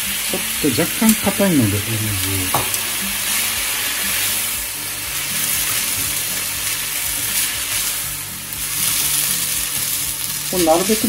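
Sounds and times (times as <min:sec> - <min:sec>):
noodles sizzling in a frying pan: 0:00.0 - 0:11.0
chopsticks tossing noodles: 0:00.7 - 0:11.0.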